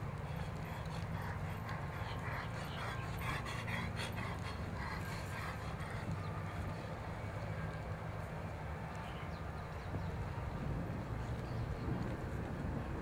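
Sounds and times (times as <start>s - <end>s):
animal panting: 0.0s - 7.7s
steady low hum: 0.0s - 8.6s.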